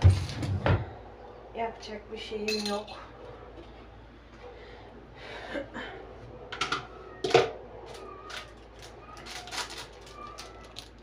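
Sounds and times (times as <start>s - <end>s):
kitchen items clattering on counter: 6.5s - 10.9s.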